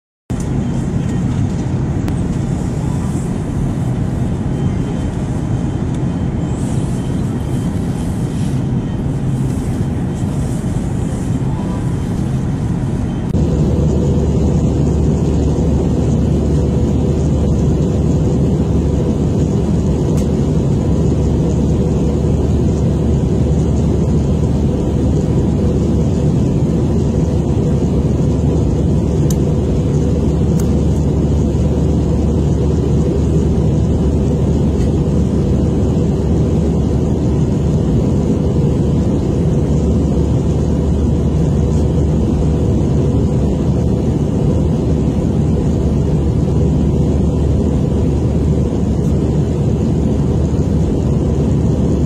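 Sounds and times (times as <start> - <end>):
jet engine cabin drone: 0.3 - 52.0.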